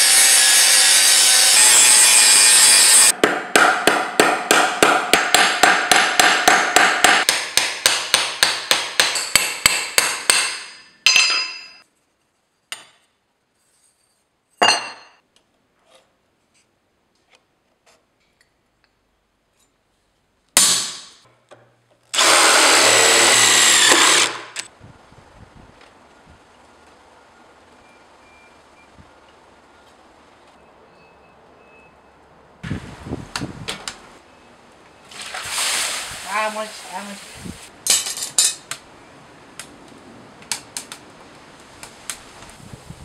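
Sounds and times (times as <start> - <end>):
power tool running: 22.2 - 24.7.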